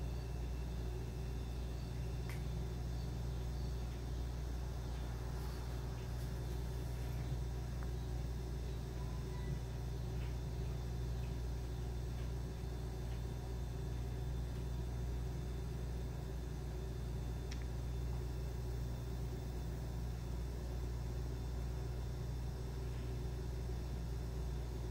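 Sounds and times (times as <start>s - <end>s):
low background hum: 0.0s - 24.9s
faint small clicks: 2.2s - 2.6s, 17.4s - 17.8s.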